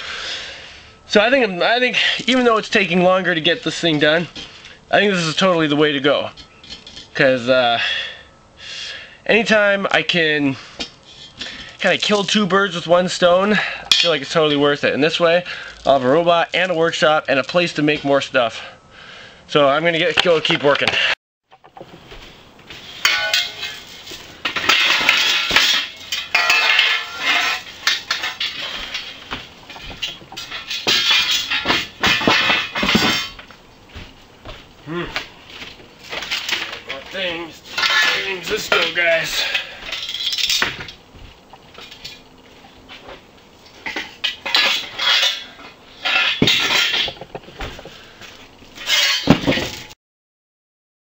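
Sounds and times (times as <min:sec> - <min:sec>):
metal parts clattering: 0:06.4 - 0:07.1, 0:22.8 - 0:33.5, 0:36.0 - 0:41.0, 0:43.8 - 0:48.0, 0:48.7 - 0:50.0
metal tubes clanking: 0:22.7 - 0:35.3, 0:36.0 - 0:48.1, 0:48.7 - 0:50.0.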